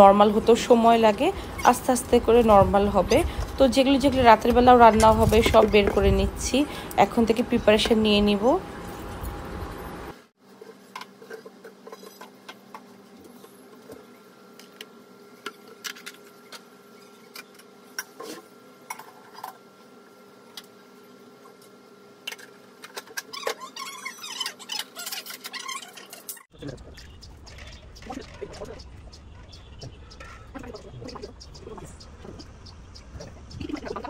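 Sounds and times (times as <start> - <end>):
steady faint hum: 0.0 - 23.1.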